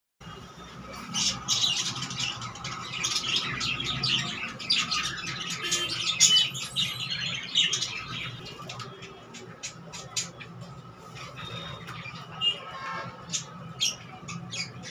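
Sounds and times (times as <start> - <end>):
budgerigars chattering: 1.0 - 12.7.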